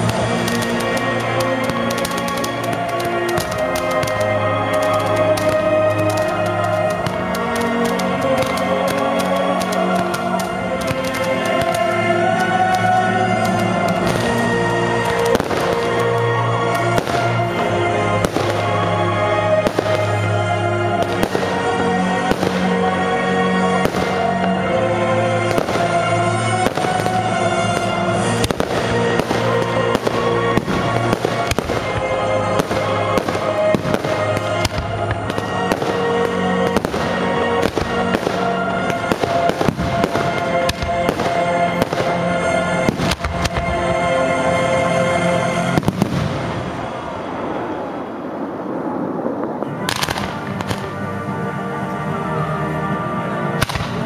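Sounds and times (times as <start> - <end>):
fireworks bursting: 0.0 - 51.6, 53.5 - 54.0
music with sustained notes: 0.0 - 54.0.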